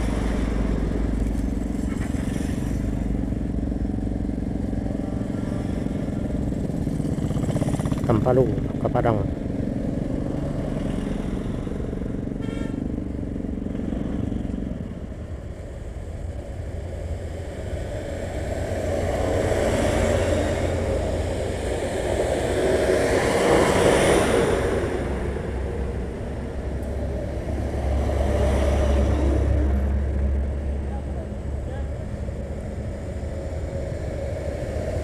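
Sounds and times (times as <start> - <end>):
trucks passing close by: 0.0 - 35.0
short horn toot: 12.4 - 12.8.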